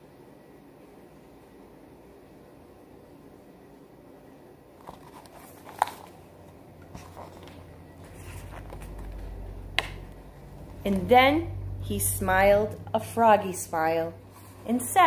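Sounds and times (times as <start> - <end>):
paper rustling: 4.8 - 9.4
low handling rumble: 8.0 - 13.8.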